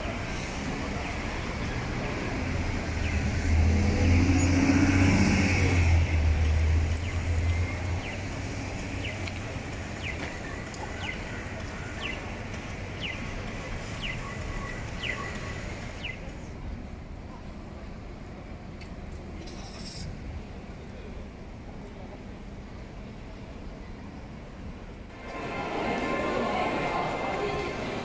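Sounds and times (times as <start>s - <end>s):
street noise: 0.0s - 28.0s
vehicle passing: 1.3s - 9.1s.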